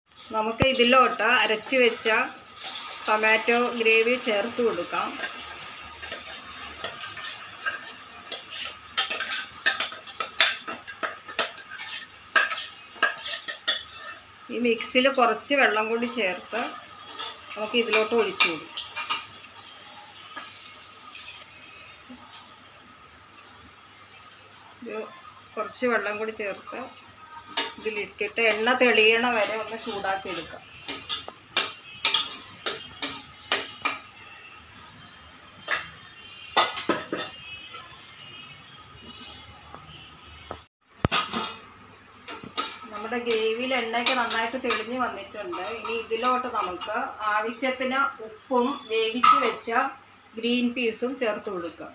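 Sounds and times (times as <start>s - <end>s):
spoon scraping and clinking on pot: 5.1s - 14.4s, 17.0s - 19.3s, 27.5s - 34.0s, 42.3s - 46.9s.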